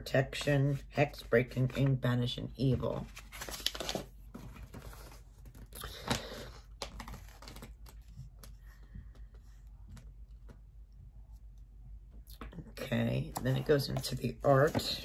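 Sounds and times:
low steady hum: 0:00.0 - 0:15.0
paper rustle: 0:02.9 - 0:08.6.

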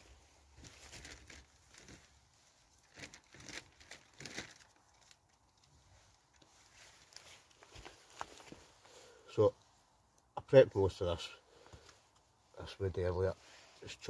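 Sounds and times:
hands rustling and crinkling: 0:00.0 - 0:10.4
short crackles: 0:02.8 - 0:05.3.

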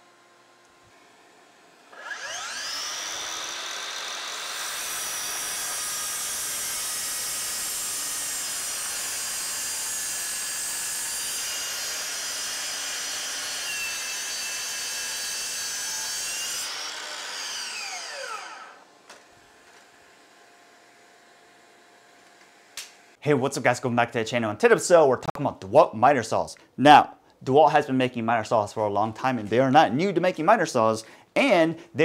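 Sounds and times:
miter saw cutting wood: 0:00.0 - 0:23.0
saw blade winding down whine: 0:01.0 - 0:20.3.

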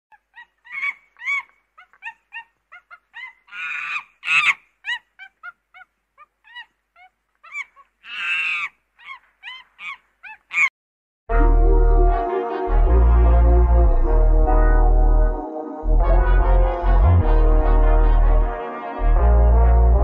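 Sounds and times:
monkey hoots and chirps: 0:00.1 - 0:10.7
monkey harsh screeches: 0:07.5 - 0:10.7.

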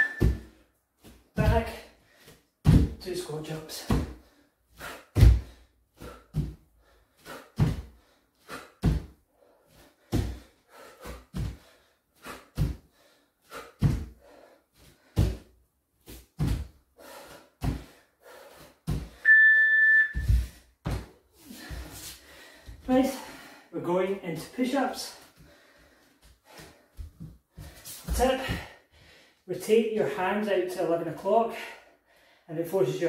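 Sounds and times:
steady beep: 0:00.0 - 0:00.4, 0:19.2 - 0:20.3
feet thudding on wooden floor: 0:00.0 - 0:00.6, 0:10.0 - 0:11.7, 0:13.8 - 0:14.2, 0:18.8 - 0:19.2, 0:20.1 - 0:22.9.

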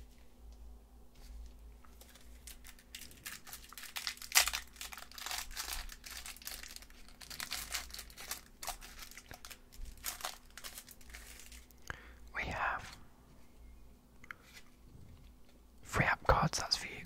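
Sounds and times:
foil wrapper crinkling: 0:01.8 - 0:11.8.

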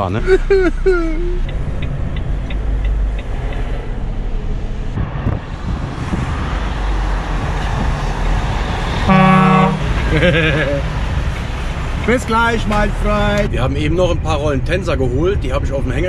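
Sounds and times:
truck engine and road noise: 0:00.0 - 0:16.0
light ticking: 0:01.3 - 0:03.7
truck horn blast: 0:09.0 - 0:10.0.

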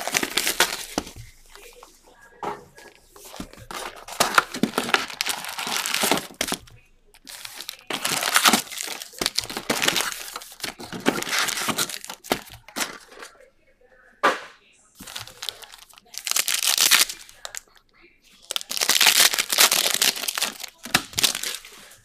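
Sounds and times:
plastic and foil crinkling: 0:00.0 - 0:13.4, 0:15.0 - 0:22.0.

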